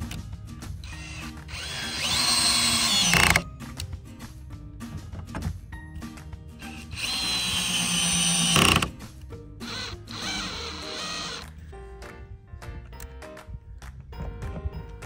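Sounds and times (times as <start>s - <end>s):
cordless drill driving screws: 0.8s - 3.4s, 6.6s - 9.0s, 9.7s - 11.5s.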